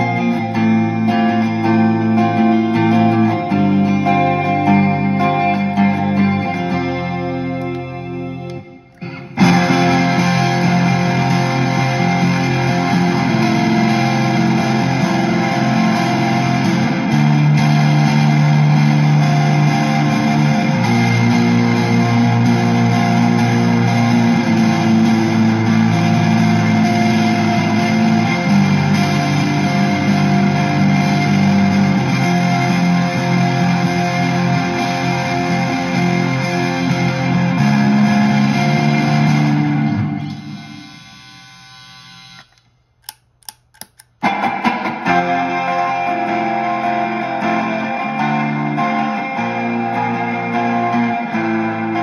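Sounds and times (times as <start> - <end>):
distorted electric guitar chords: 0.0 - 52.0
sharp clicks: 42.2 - 44.2.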